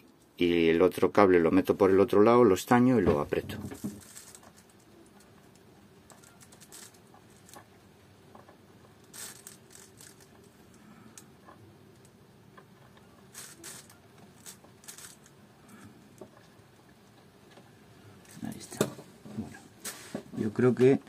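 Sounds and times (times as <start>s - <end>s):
flux crackling: 3.8s - 17.4s.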